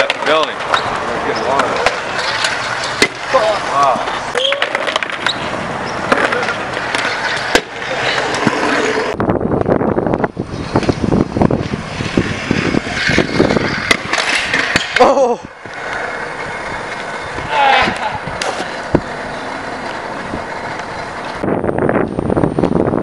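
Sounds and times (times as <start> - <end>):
scooter wheels rolling on concrete: 0.0 - 23.0
scooter landing clacks: 1.6 - 3.4.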